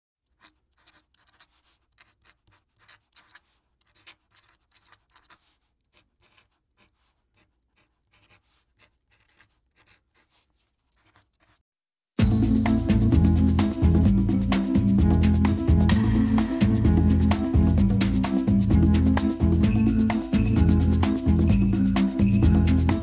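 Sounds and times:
highlighter marker scratching on paper: 0:00.3 - 0:11.6.

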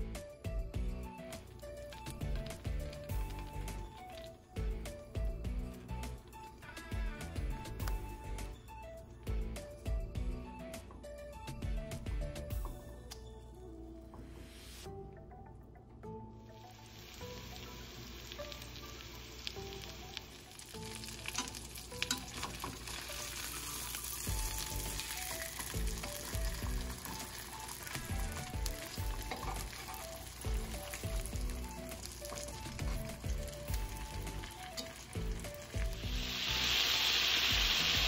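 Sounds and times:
background music with steady beat: 0:00.0 - 0:38.0
chicken sizzling in hot oil: 0:01.7 - 0:04.8, 0:16.5 - 0:38.0
metal tongs clicking: 0:21.2 - 0:22.9.

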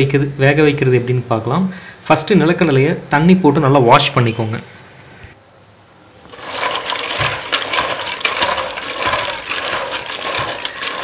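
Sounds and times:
water sloshing in metal pot: 0:06.3 - 0:11.0.

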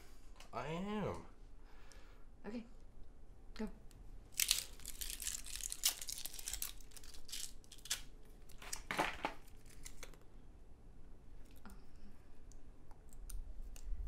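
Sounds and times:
fortune cookies cracking: 0:03.9 - 0:10.3, 0:12.4 - 0:14.0
paper crinkling: 0:04.3 - 0:10.2.

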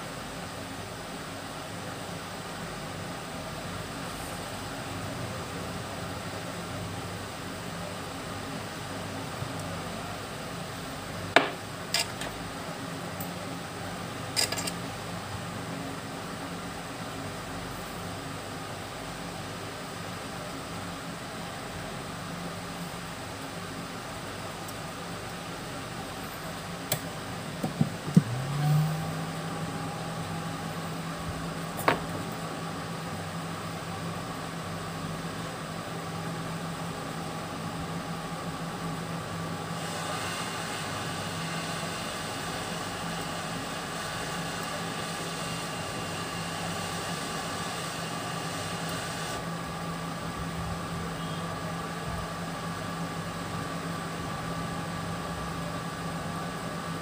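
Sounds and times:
hot-air station hissing: 0:00.0 - 0:57.0.

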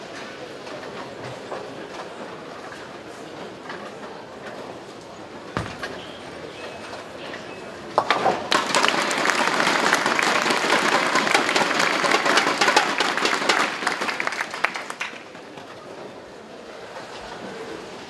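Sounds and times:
audience applauding: 0:08.5 - 0:15.4.

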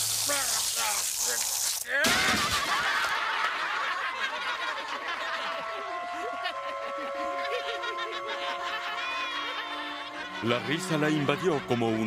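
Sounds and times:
children laughing: 0:02.0 - 0:10.7
held musical notes: 0:05.1 - 0:12.0.

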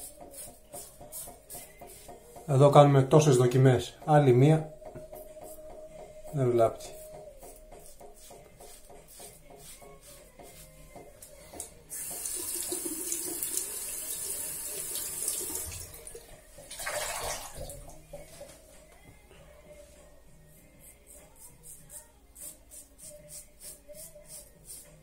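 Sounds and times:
tap running: 0:11.0 - 0:14.2
water splash: 0:16.8 - 0:17.7.

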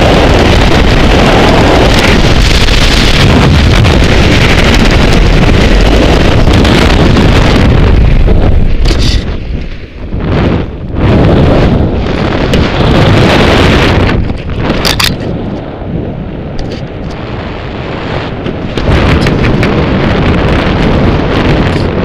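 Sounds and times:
sharp crackle: 0:00.0 - 0:15.7
wind buffeting microphone: 0:00.0 - 0:22.0.

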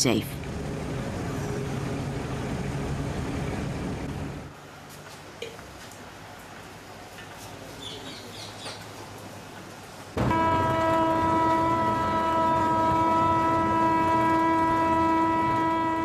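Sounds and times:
locomotive horn blast: 0:10.2 - 0:16.0.

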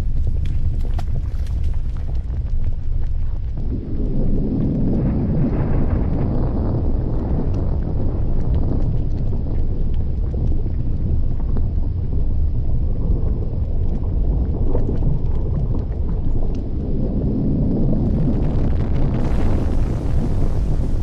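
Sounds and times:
faint crackles: 0:00.0 - 0:21.0
volcanic vent rumbling: 0:00.0 - 0:21.0
wind buffeting microphone: 0:00.0 - 0:21.0.

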